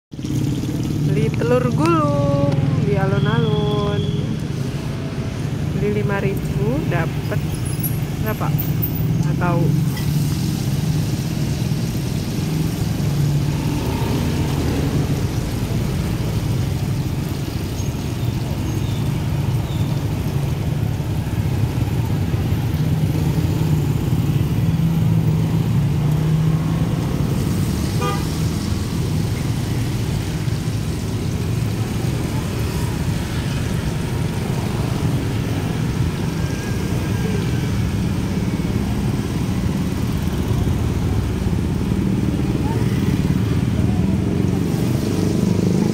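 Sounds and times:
road traffic rumble: 0.1 - 45.9.

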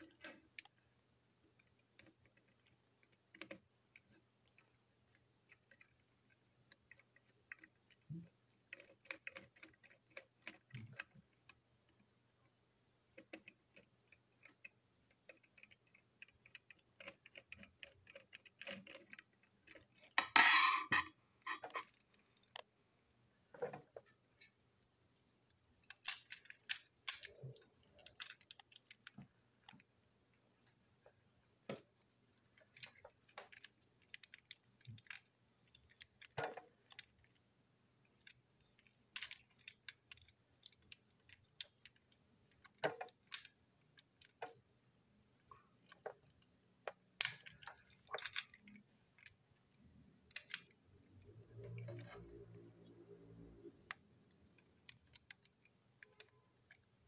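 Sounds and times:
toy parts clicking and tapping: 1.5 - 22.8, 23.8 - 29.9, 30.6 - 44.7, 45.4 - 57.0
toy parts clattering: 15.3 - 22.7, 23.6 - 29.8, 31.7 - 37.4, 38.0 - 44.6, 45.7 - 57.0.

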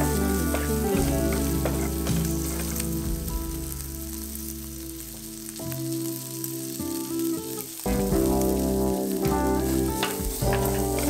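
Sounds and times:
wooden spatula stirring: 0.0 - 3.2, 9.3 - 11.0
food sizzling in frying pan: 0.0 - 11.0
soft background music: 0.0 - 11.0.

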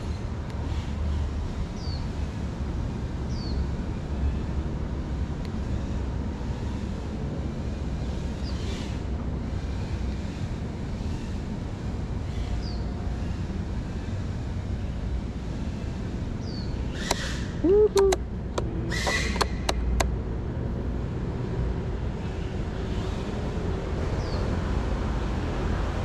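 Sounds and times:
sharp clicks and knocks: 17.9 - 20.1.

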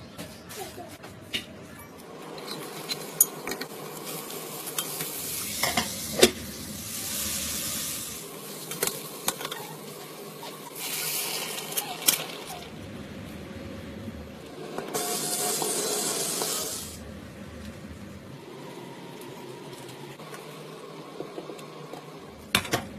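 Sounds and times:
vegetables sizzling in a pot: 3.6 - 12.7, 14.4 - 17.0.

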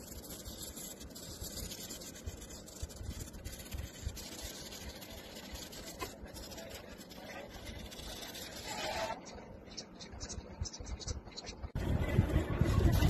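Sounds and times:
crayon scribbling on paper: 0.0 - 9.3.

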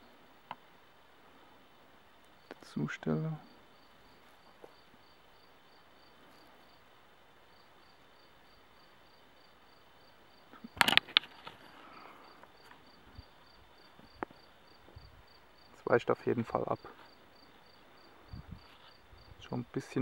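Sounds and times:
cricket chirping: 3.4 - 19.8
compass clattering on ground: 10.7 - 11.7.

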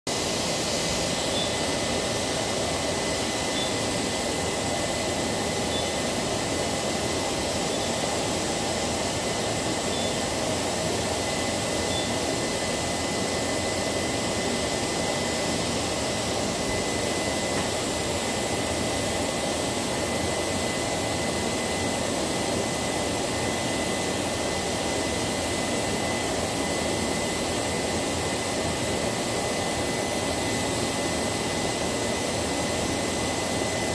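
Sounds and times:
factory machinery whirring: 0.1 - 32.1
high-pitched whine: 0.1 - 33.9.

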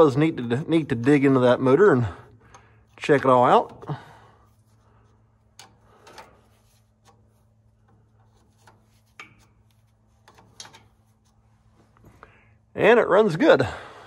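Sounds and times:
steady low hum: 0.0 - 14.0
wrench and metal fittings tapping: 5.5 - 11.0.

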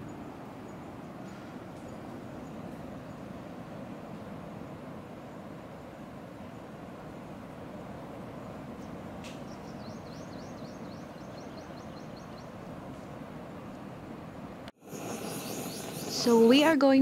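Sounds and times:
distant surf breaking: 0.0 - 17.0
bird chirping rapidly: 9.4 - 12.6, 15.0 - 16.7
loud hiss: 14.8 - 16.8.

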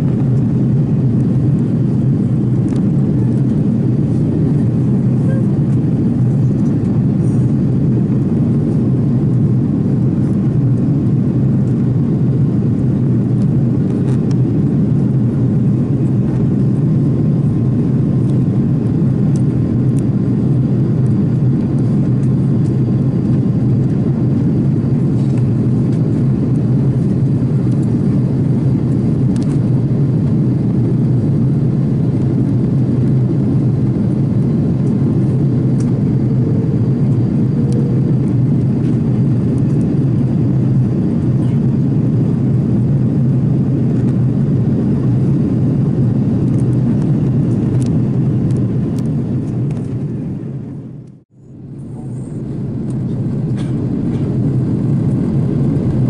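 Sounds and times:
airliner cabin engine rumble: 0.0 - 56.0
faint steady whine: 0.0 - 56.0.

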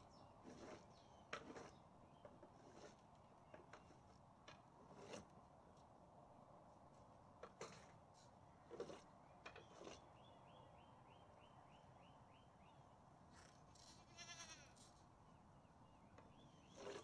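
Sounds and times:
goat bleating: 13.9 - 14.8.

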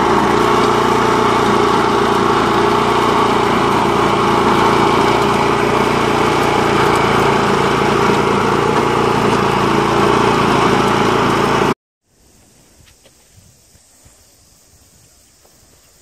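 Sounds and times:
tiller petrol engine running: 0.0 - 11.8.

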